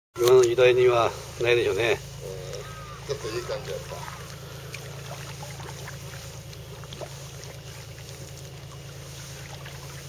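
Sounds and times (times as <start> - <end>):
steady low hum: 0.2 - 10.0
paddle splashes and drips: 3.6 - 10.0.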